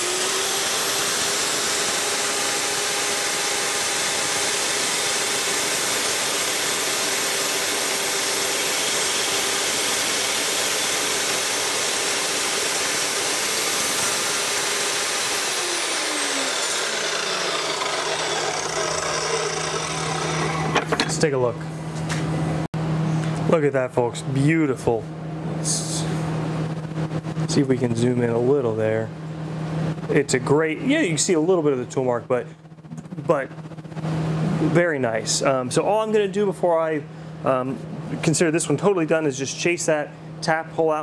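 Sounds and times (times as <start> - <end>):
chop saw cutting metal: 0.0 - 21.3
saw blade spinning down: 0.0 - 21.3.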